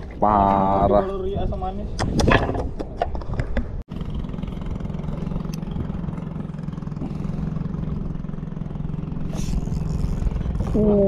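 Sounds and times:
small engine running: 0:03.9 - 0:11.0.

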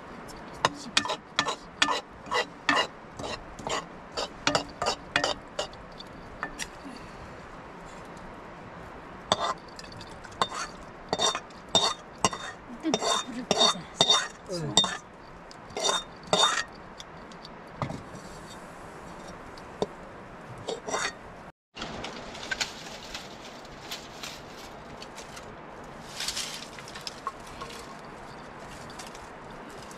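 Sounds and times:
metal cookware clinking and scraping: 0:01.0 - 0:06.6, 0:09.3 - 0:15.0, 0:15.7 - 0:16.8, 0:20.7 - 0:21.2.

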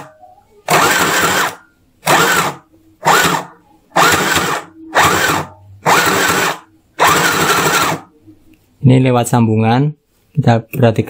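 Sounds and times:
sewing machine motor running: 0:00.7 - 0:08.1.

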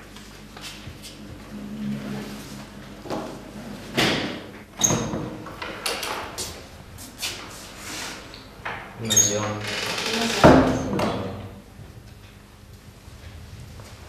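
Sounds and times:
door opening and shutting: 0:03.1 - 0:06.4, 0:08.7 - 0:11.4
door knocks and thuds: 0:10.4 - 0:11.2.

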